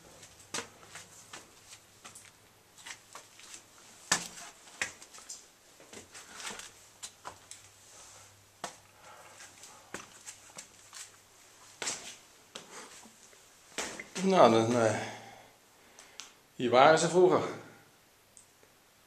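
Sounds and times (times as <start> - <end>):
footsteps on stone floor: 0.0 - 7.7, 8.6 - 14.8.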